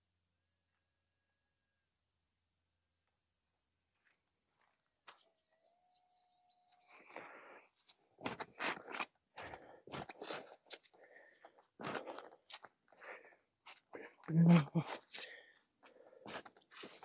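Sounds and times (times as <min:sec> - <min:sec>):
boots on wet grass: 0:08.2 - 0:10.9, 0:11.8 - 0:12.7.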